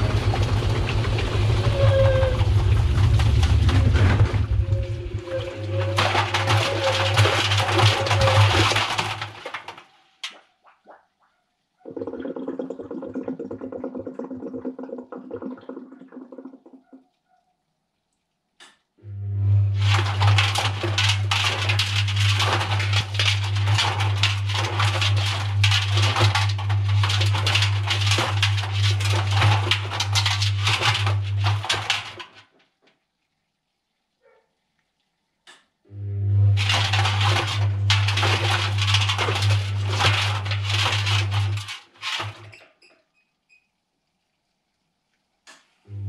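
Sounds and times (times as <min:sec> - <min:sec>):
washing machine motor hum: 0:00.0 - 0:09.6, 0:19.0 - 0:32.4, 0:35.9 - 0:42.6.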